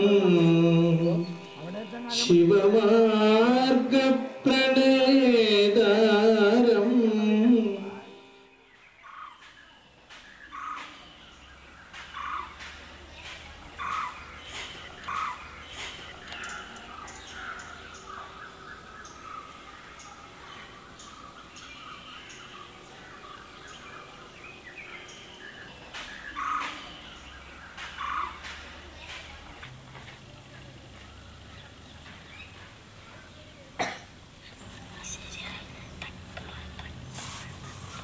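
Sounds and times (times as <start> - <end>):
harsh short bird calls: 7.8 - 29.6.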